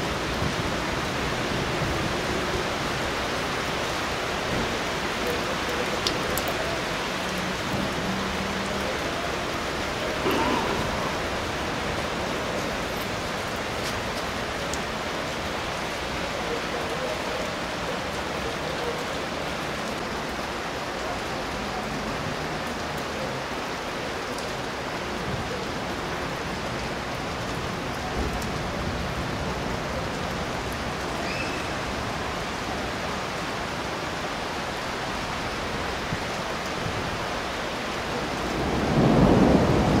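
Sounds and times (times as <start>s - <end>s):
steady rain hiss: 0.0s - 40.0s
raindrop ticks: 4.5s - 9.0s, 10.0s - 23.2s
thunder rumble: 9.6s - 13.8s, 38.4s - 40.0s.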